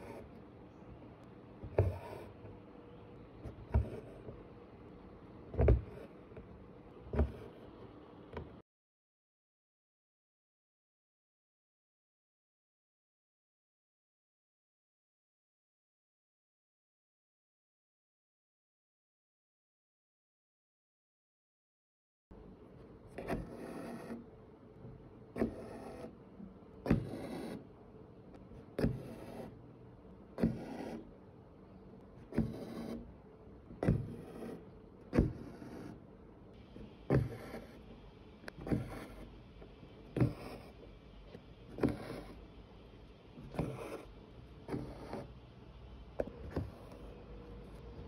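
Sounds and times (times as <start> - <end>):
needle stitching through canvas: 1.6 - 2.5, 3.4 - 4.5, 23.1 - 24.3, 25.3 - 26.2, 26.8 - 27.7, 28.5 - 29.6, 30.4 - 31.1, 32.2 - 33.1, 33.7 - 36.0, 36.8 - 39.4, 40.0 - 42.6, 43.4 - 45.4.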